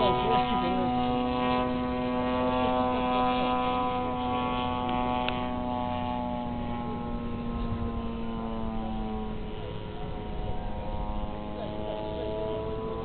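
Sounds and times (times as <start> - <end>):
airplane engines droning overhead: 0.0 - 13.0.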